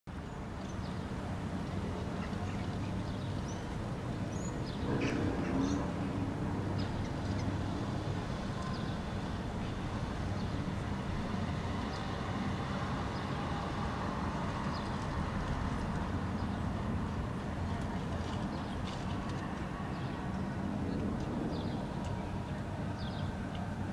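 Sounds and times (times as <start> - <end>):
distant city traffic rumble: 0.1 - 23.9.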